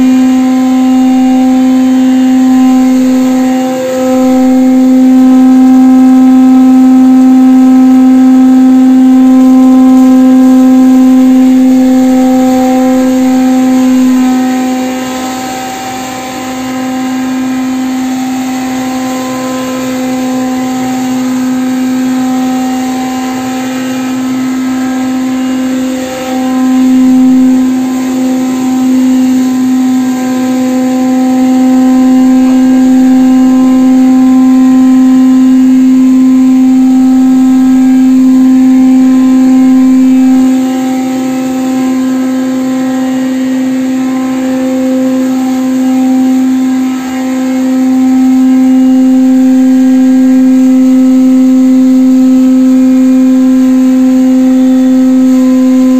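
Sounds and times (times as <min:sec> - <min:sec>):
electric motor grinder humming: 0:09.6 - 0:51.8.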